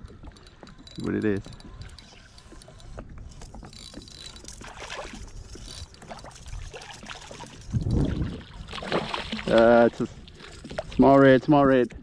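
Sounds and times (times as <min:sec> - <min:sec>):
water splashing and trickling: 0:00.0 - 0:12.0.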